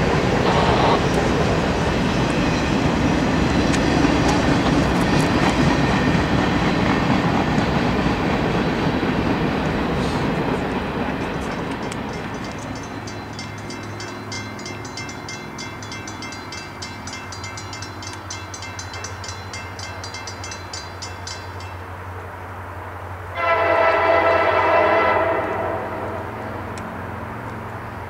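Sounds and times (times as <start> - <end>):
train noise: 0.0 - 28.0
rapid high ticking: 11.1 - 21.9
locomotive chime air horn: 23.3 - 26.4.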